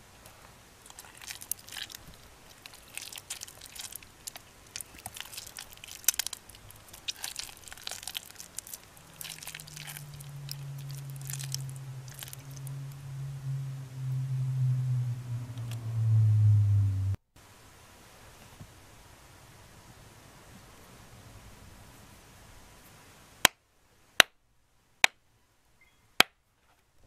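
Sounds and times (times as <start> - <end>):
low steady hum: 0.0 - 26.1
wet soap squishing: 0.8 - 12.8.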